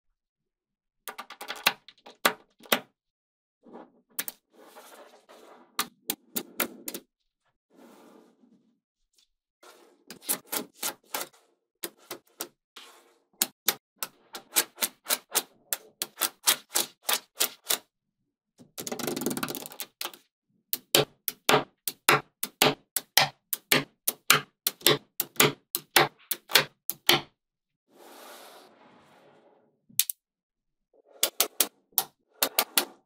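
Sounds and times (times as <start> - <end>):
scraping noise: 3.6 - 7.0, 7.7 - 8.8, 27.9 - 29.8
magnetic balls clicking together: 18.8 - 20.2.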